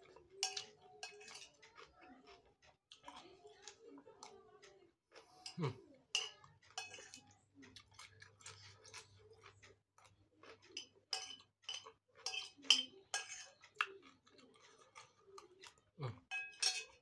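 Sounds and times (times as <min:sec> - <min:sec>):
chewing crunchy food: 0:00.0 - 0:17.0
metal spoon scraping a plate: 0:00.4 - 0:01.5, 0:05.3 - 0:07.3, 0:10.8 - 0:13.8, 0:16.3 - 0:17.0.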